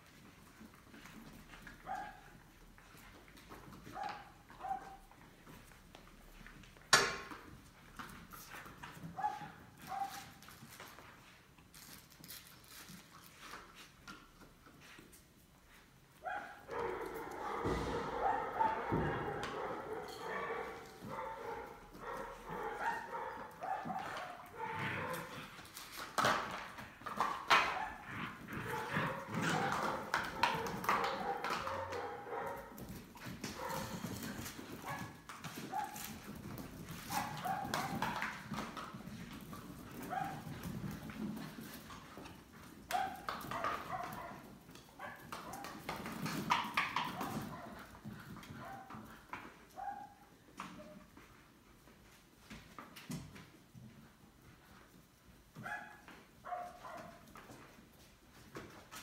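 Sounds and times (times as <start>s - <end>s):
puppies play-growling and yipping: 0.0s - 5.7s, 7.4s - 51.0s
claws scrabbling on wooden floor: 16.2s - 49.8s.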